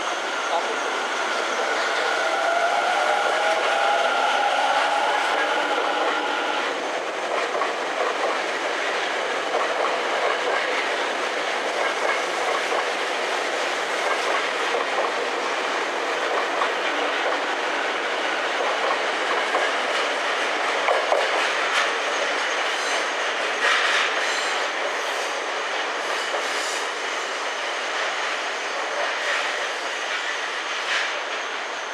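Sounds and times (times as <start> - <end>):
train wheels rumbling on rails: 0.0 - 31.9.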